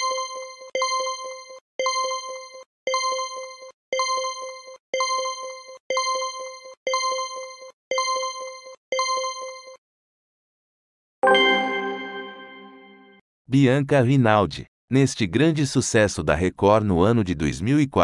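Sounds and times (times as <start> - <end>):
bright pitched timer tone: 0.0 - 9.8.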